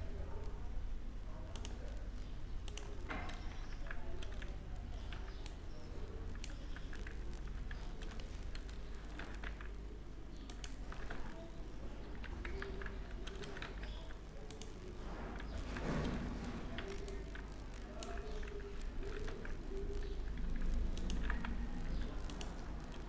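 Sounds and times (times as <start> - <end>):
mouse clicks: 1.5 - 5.6, 16.8 - 23.0
keyboard keystrokes: 10.4 - 14.8, 15.4 - 23.0.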